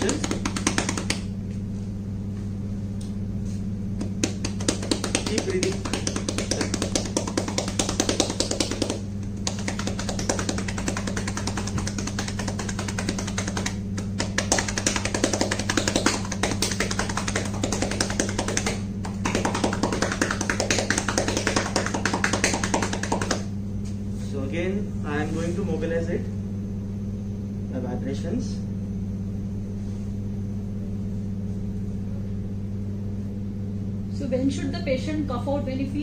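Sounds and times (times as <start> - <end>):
cupped hands clapping on back: 0.0 - 1.3, 4.0 - 23.5.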